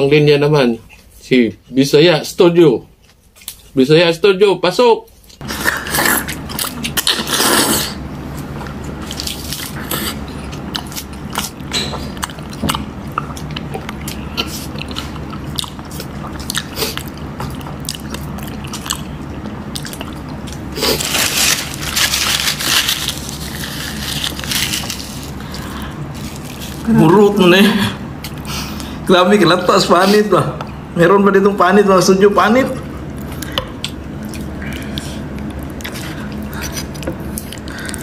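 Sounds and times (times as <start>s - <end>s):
person chewing and crunching: 5.2s - 27.2s, 32.8s - 38.0s.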